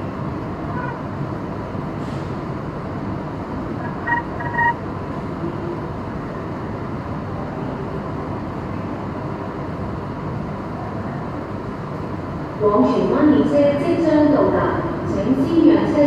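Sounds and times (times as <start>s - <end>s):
metro train running in tunnel: 0.0s - 16.0s
short electronic beeps: 3.8s - 4.8s.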